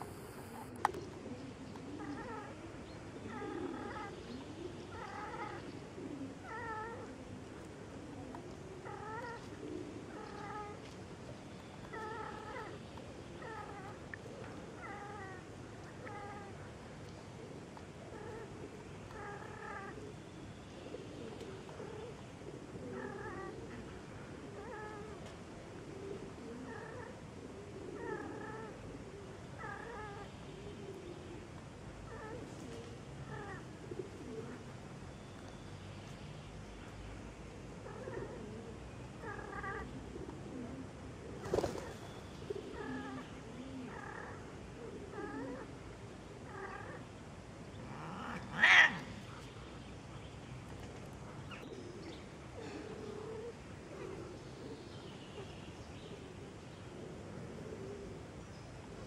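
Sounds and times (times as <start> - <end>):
cats caterwauling: 39.2 - 39.9, 47.8 - 49.5.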